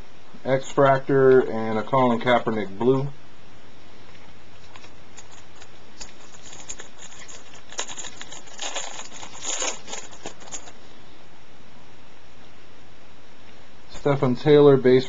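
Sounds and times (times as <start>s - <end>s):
foil wrapper crinkling and tearing: 4.6s - 10.8s.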